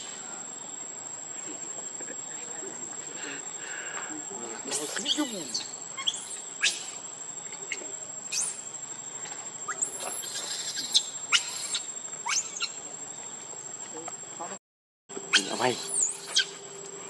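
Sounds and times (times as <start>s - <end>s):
high insect drone: 0.0s - 17.0s
monkey squealing: 4.7s - 7.0s, 7.7s - 8.6s, 9.7s - 12.8s, 15.3s - 16.6s.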